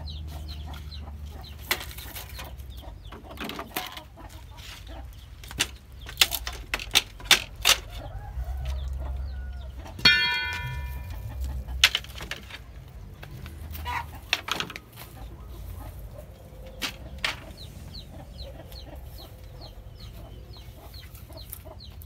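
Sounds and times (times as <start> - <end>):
chickens clucking: 0.0 - 22.0
ringing metallic knock: 10.0 - 11.7
sharp knocks: 10.0 - 12.4.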